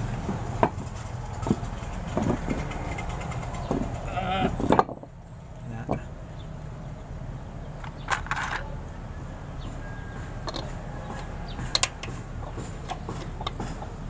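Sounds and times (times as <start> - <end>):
metal lug nuts clinking: 7.7 - 8.8, 10.4 - 14.0.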